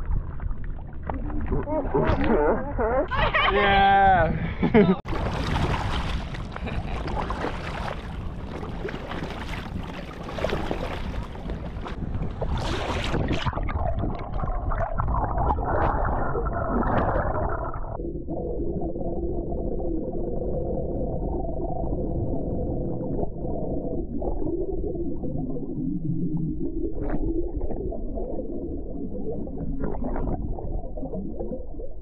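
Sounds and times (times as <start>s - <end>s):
muffled underwater gurgle: 0.0s - 3.2s, 4.4s - 32.0s
water sloshing against kayak: 5.1s - 14.0s.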